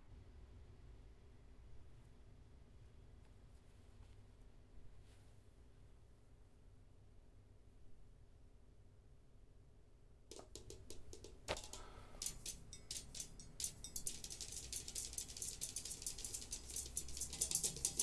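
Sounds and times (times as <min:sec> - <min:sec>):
fast drum rhythm: 0:10.3 - 0:18.0.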